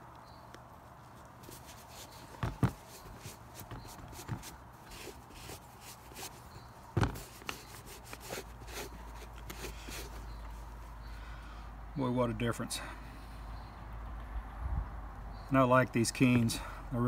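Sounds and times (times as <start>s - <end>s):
cloth rubbing on leather boot: 1.1s - 10.7s
thumps: 1.5s - 5.6s, 6.9s - 8.4s.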